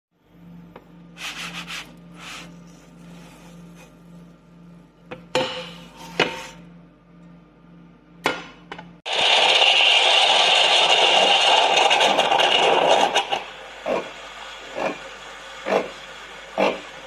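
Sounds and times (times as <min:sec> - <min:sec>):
rubbing and scraping: 0:01.1 - 0:04.4.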